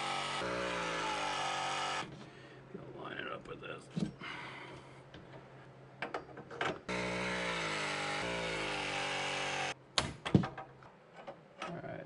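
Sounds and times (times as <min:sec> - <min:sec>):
press tool motor running: 0:00.0 - 0:02.1, 0:06.9 - 0:09.8.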